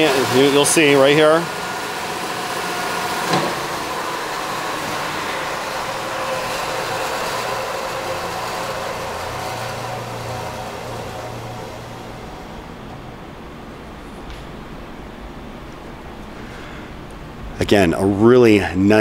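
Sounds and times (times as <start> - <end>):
bandsaw spinning down: 0.0 - 12.8.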